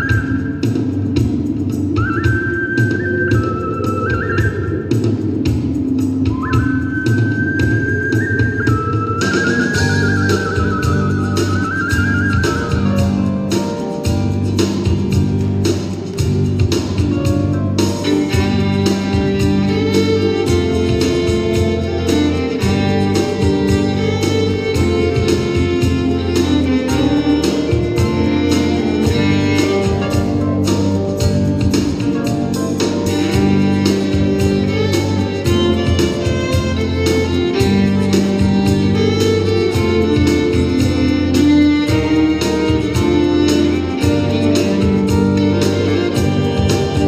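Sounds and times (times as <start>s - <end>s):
live band music: 0.0s - 47.0s
steady drum beat: 0.0s - 47.0s
fiddle: 9.4s - 47.0s.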